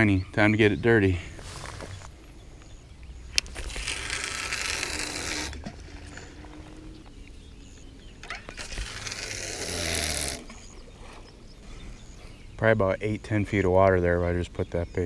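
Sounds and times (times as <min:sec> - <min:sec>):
line hissing off reel spool: 0:03.5 - 0:06.2, 0:08.6 - 0:10.6.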